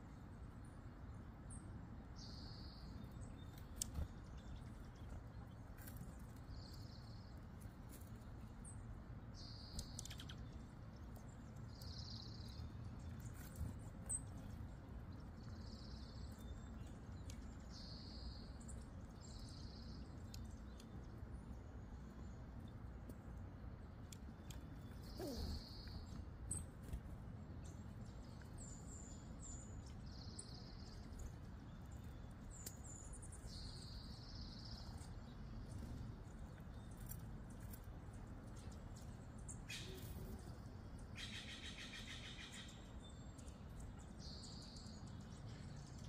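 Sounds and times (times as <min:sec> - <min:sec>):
low outdoor rumble: 0:00.0 - 0:46.0
bird buzzy call: 0:25.0 - 0:26.0.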